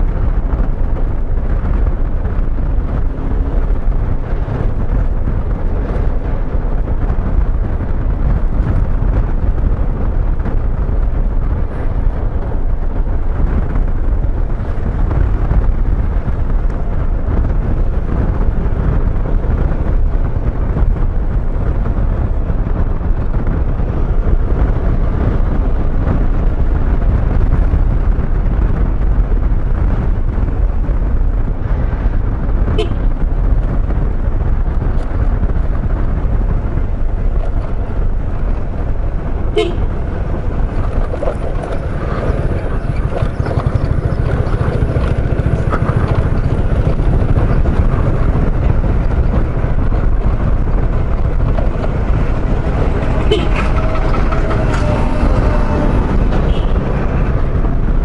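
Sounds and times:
road noise: 0:00.0 - 0:58.0
wind rush over microphone: 0:00.0 - 0:58.0
scooter engine: 0:36.5 - 0:58.0.

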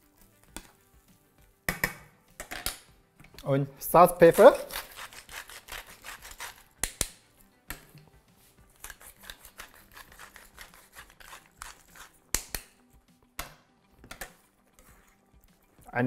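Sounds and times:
pepper mill grinding: 0:04.3 - 0:07.1, 0:08.8 - 0:12.7.

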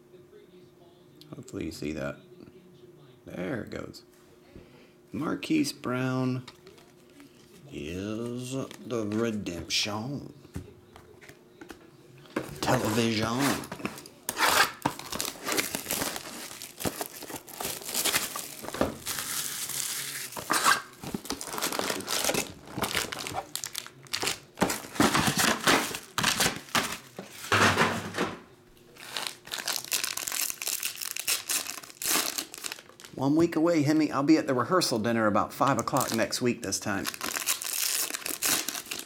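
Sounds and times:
foil packs rustling: 0:12.4 - 0:28.3, 0:29.0 - 0:33.2, 0:35.9 - 0:39.0
plastic shrink-wrap crinkling and tearing: 0:12.6 - 0:27.5, 0:28.9 - 0:33.2, 0:35.8 - 0:39.0.

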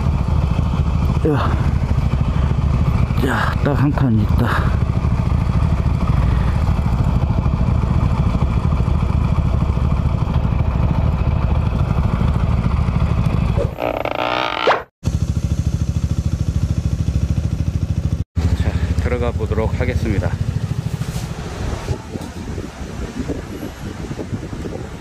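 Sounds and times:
motorcycle engine idling: 0:00.0 - 0:13.8, 0:15.0 - 0:21.0.

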